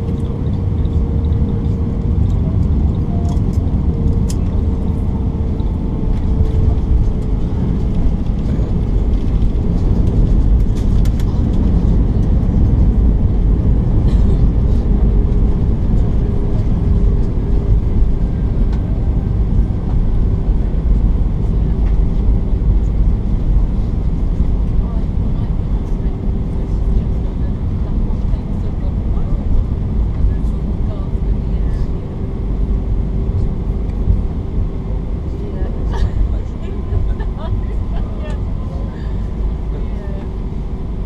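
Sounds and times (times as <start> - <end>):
airliner cabin rumble: 0.0 - 41.0.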